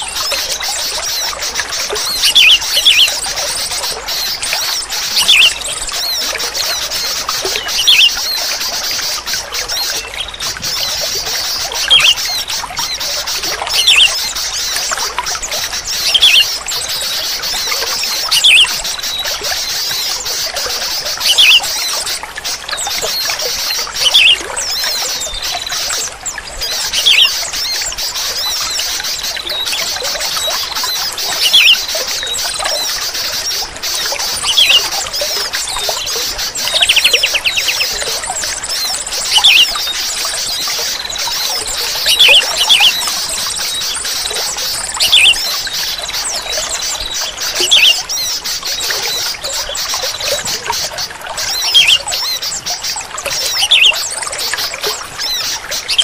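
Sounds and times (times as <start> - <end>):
bulbul calling: 0.0 - 56.0
trickle of running water: 0.0 - 56.0.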